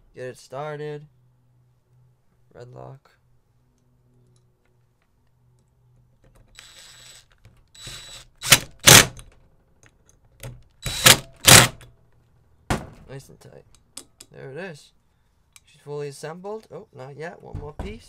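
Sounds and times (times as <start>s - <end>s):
impact driver spinning with high whine: 6.5s - 9.2s, 10.8s - 11.8s
impact driver hammering bolts: 7.8s - 9.3s, 10.4s - 11.9s.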